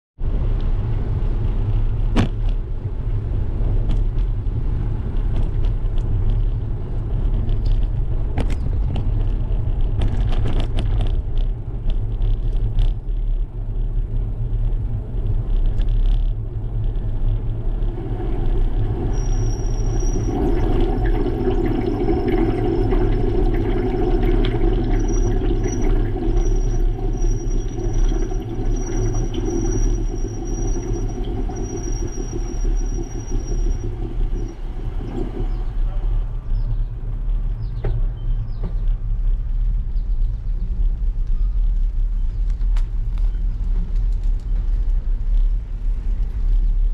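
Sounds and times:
wind and road rumble: 0:00.2 - 0:46.9
bicycle knocks and rattles: 0:01.6 - 0:18.4
thin high whine: 0:17.6 - 0:36.2.

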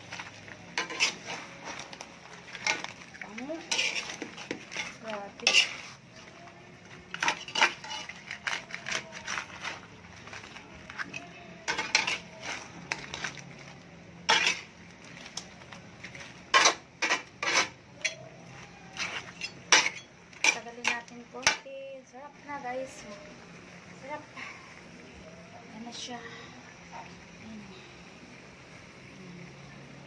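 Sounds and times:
metal pot and utensil clinking: 0:00.0 - 0:01.9, 0:02.5 - 0:06.0, 0:07.1 - 0:13.4, 0:14.2 - 0:14.8, 0:16.5 - 0:18.3, 0:19.0 - 0:21.6.

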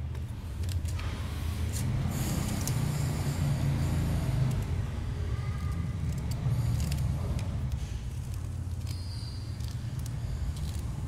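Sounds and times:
scissors scraping and snipping plastic: 0:05.5 - 0:11.0.

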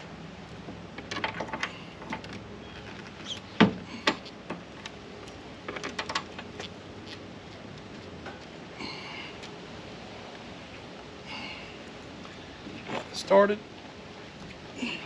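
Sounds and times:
clicks and knocks of metal frame: 0:00.9 - 0:02.4, 0:05.6 - 0:06.7.

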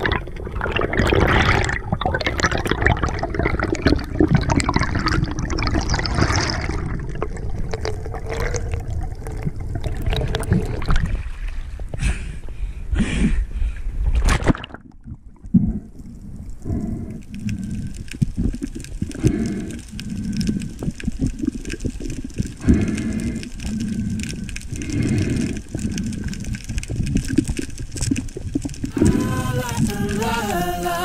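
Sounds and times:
fine steady crackle: 0:00.0 - 0:31.0
muffled underwater water rushing: 0:00.0 - 0:31.0.

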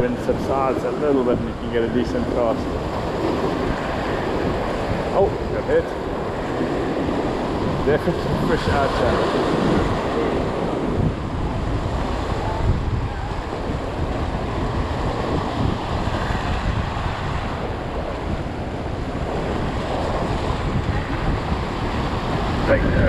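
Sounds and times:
waves breaking against rocks: 0:00.0 - 0:23.0
wind buffeting microphone: 0:00.0 - 0:23.0.

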